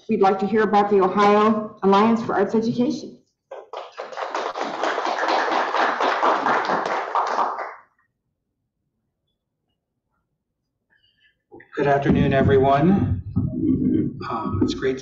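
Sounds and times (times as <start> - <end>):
audience applauding: 3.5 - 7.9.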